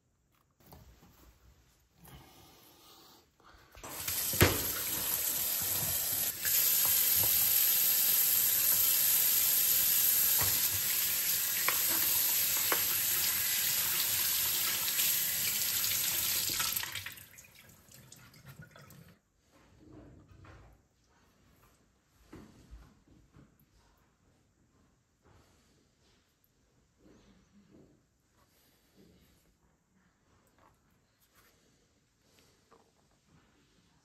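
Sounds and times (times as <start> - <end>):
tap water splashing into sink: 3.8 - 19.0.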